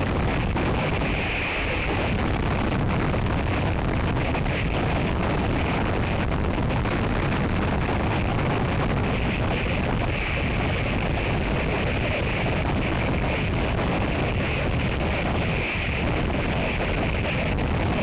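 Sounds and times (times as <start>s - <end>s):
strong wind on microphone: 0.0s - 18.0s.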